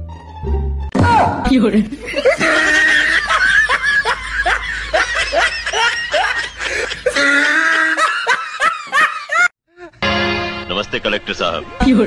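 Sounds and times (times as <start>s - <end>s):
snickering laughter: 2.0s - 9.5s.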